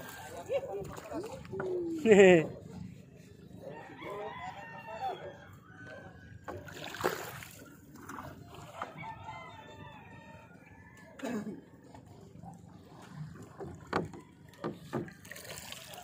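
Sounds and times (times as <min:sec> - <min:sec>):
rooster crowing: 0:03.8 - 0:06.2, 0:08.9 - 0:11.2
water splashing: 0:06.5 - 0:08.9, 0:12.7 - 0:16.0.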